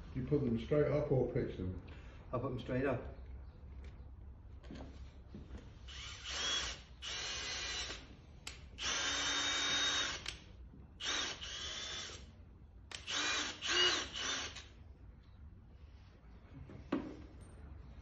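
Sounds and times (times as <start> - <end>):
cordless drill whine: 5.9 - 8.1, 8.8 - 10.3, 11.0 - 12.3, 12.9 - 14.7.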